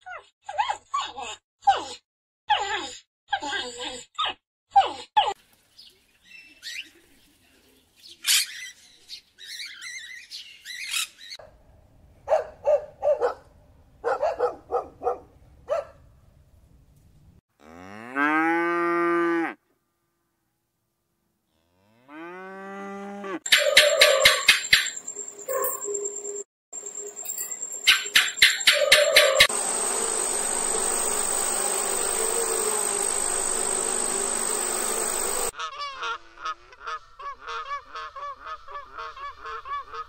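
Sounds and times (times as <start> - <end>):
cattle mooing: 17.6 - 19.6.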